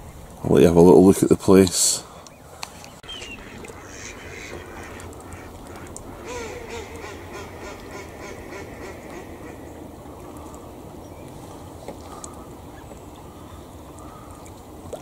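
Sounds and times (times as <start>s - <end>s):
ducks quacking: 3.0s - 10.4s.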